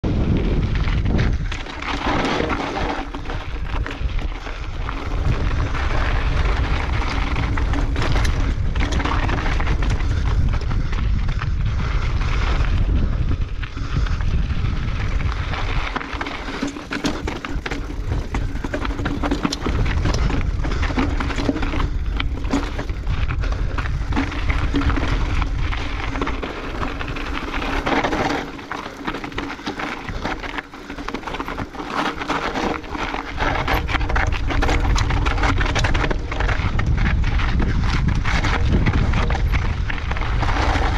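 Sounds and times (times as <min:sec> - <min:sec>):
wind buffeting microphone: 0:00.0 - 0:40.9
bike tyres crunching over rock: 0:00.1 - 0:40.9
bike knocks and clatters: 0:00.4 - 0:11.5, 0:15.7 - 0:40.9.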